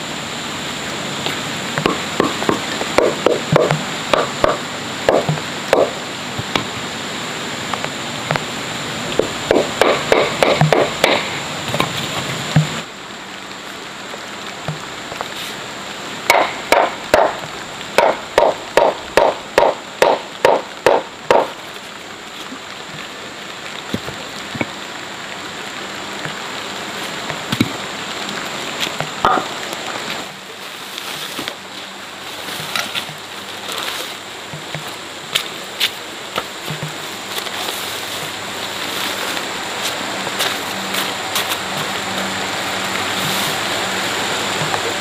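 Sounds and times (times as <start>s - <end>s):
steady hiss: 0.0s - 45.0s
knocks and taps: 1.8s - 6.7s
quick chopping strikes: 9.5s - 11.3s.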